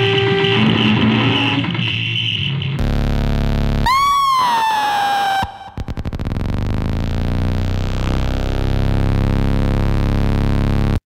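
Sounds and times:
distorted noise wall: 0.0 - 11.0
high pitched squeal: 3.7 - 7.2.

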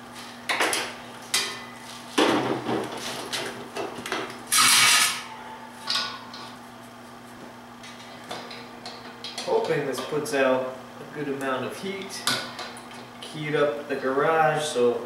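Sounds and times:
faint steady hum: 3.7 - 15.0.

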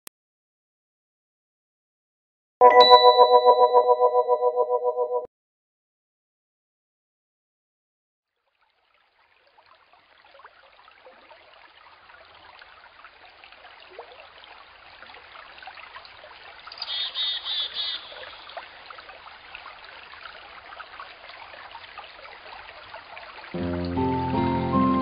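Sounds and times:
creek trickling and babbling: 8.3 - 25.0.

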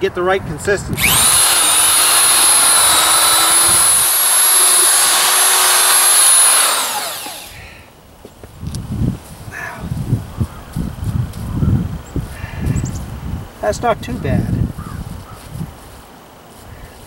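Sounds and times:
power drill whining: 1.0 - 7.9.

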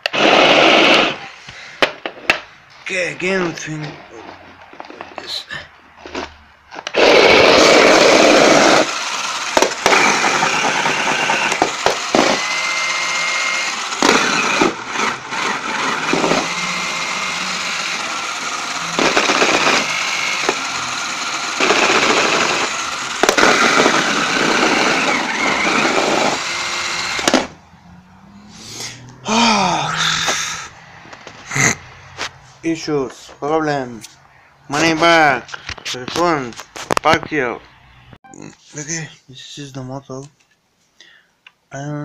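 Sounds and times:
toy car electric motors whirring: 0.0 - 1.5, 6.0 - 27.6.

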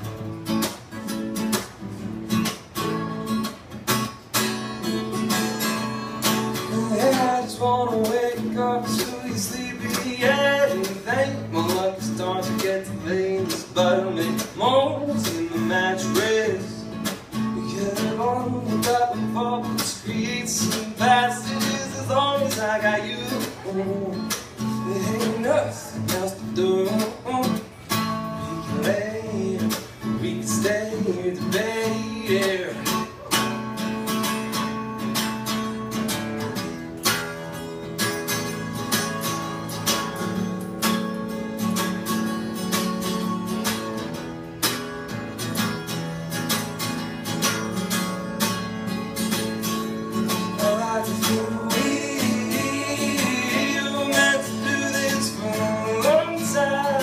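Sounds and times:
acoustic guitar strumming: 0.0 - 57.0
man singing: 6.4 - 33.6, 50.2 - 57.0.

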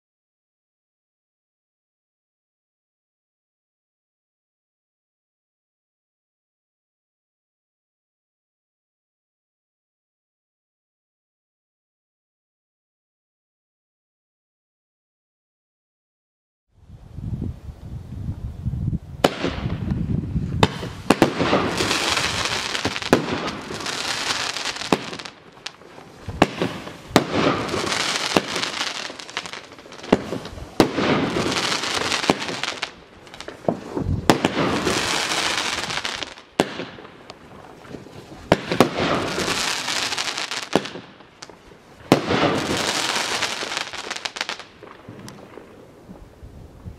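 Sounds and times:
firework crackling: 19.2 - 46.1
firework launch and burst reports: 26.3 - 37.1.

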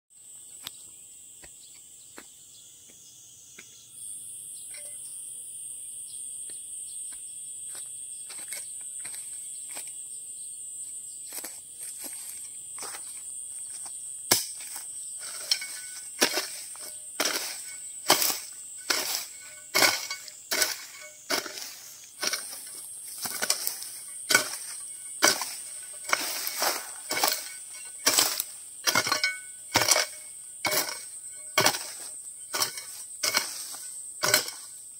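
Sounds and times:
insects droning: 0.1 - 34.9
chopping wood strikes: 14.3 - 15.4, 23.2 - 33.6, 34.2 - 34.7.

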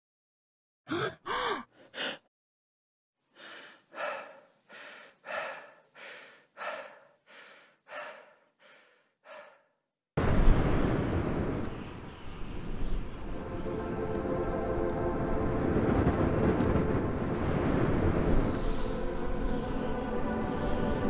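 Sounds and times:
person breathing quickly: 0.9 - 2.3, 3.3 - 9.9
person gasping: 0.9 - 2.3, 3.3 - 9.8
wind noise with deep rumble: 10.2 - 21.0.

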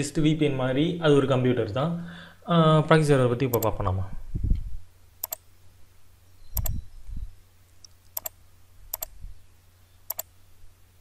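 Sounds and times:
computer mouse clicking: 3.5 - 3.7, 5.2 - 5.4, 6.6 - 6.8, 7.8 - 9.1, 10.1 - 10.3.

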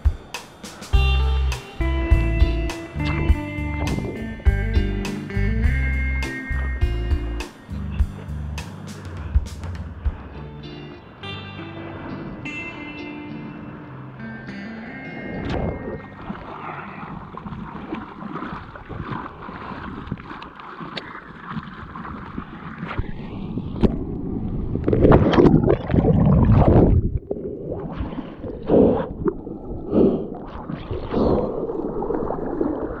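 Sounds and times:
wind buffeting microphone: 2.1 - 5.9, 15.0 - 20.4
water splashes: 2.7 - 5.4, 14.5 - 33.0
sea water sloshing and gurgling: 14.8 - 33.0.

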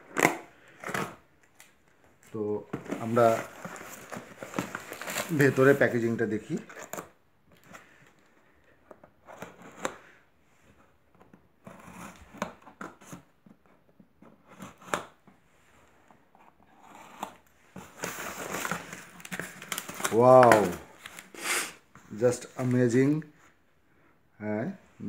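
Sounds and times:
cardboard and plastic rustling: 0.0 - 10.1, 16.4 - 21.4.

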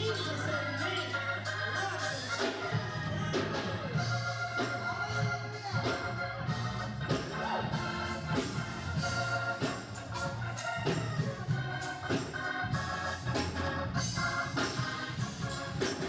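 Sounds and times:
gospel music with organ: 0.0 - 16.0.

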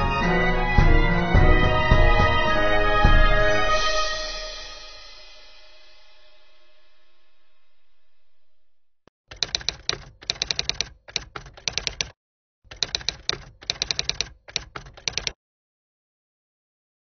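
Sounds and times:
rapid keyboard typing: 9.3 - 15.4.

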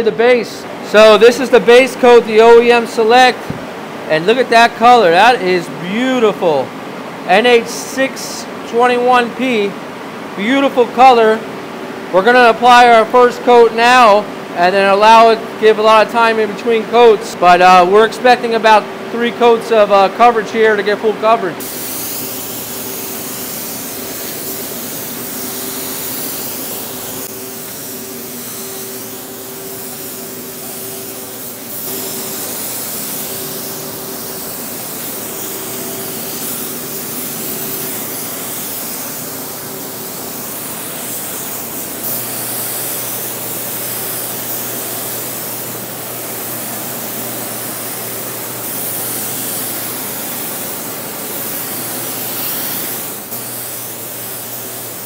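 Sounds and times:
blower fan hum: 0.0 - 55.0
spray gun hissing: 21.6 - 55.0.

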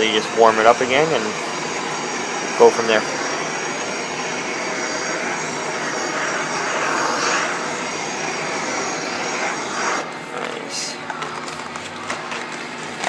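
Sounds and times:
propane torch hissing: 0.0 - 10.1.

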